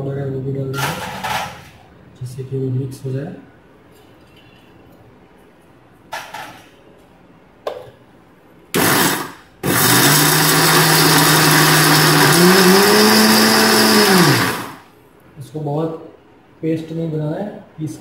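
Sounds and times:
mixer grinder running: 8.8 - 14.9.

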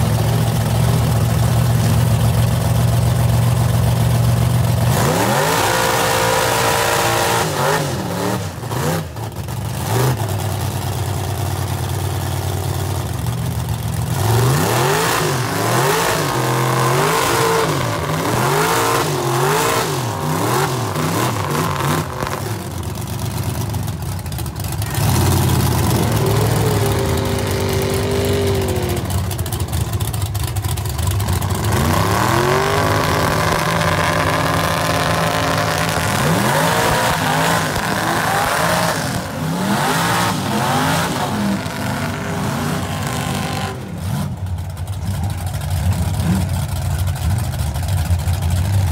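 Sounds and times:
truck engines revving hard: 0.0 - 47.7.

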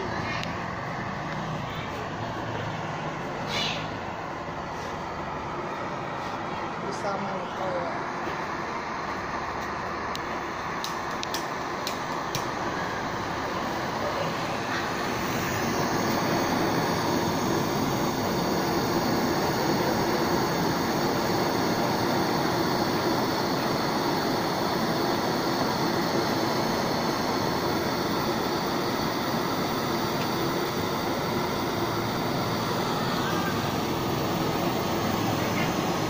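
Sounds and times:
torch flame hissing: 0.0 - 36.0.

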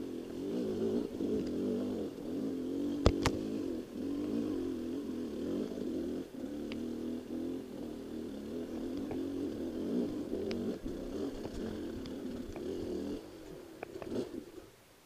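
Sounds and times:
dirt bike engine rumbling: 0.0 - 15.0
clicks and knocks over rough ground: 3.0 - 3.5.

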